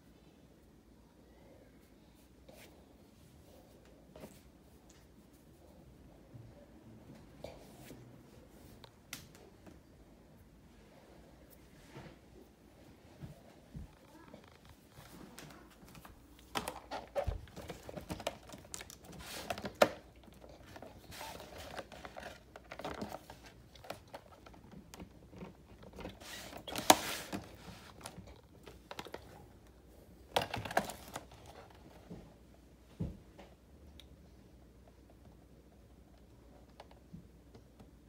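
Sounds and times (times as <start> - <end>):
plastic blister packs crinkling: 15.3 - 29.4, 30.3 - 31.8.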